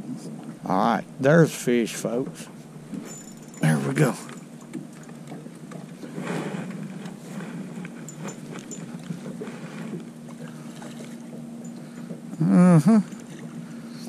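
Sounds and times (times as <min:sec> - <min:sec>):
low hum: 0:00.0 - 0:14.0
short voice-like call: 0:12.4 - 0:13.1.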